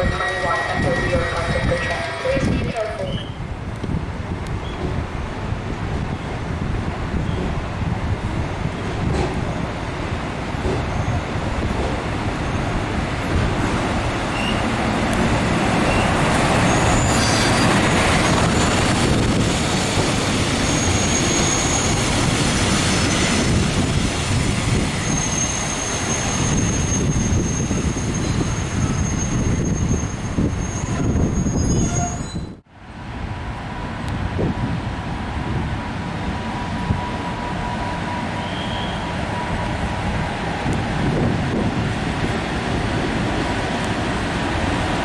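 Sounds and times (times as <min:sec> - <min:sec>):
diesel railcar rumbling: 0:00.0 - 0:45.0
high wheel squeal: 0:14.3 - 0:14.7, 0:15.9 - 0:18.8, 0:20.6 - 0:22.0, 0:25.0 - 0:32.6, 0:38.1 - 0:39.1.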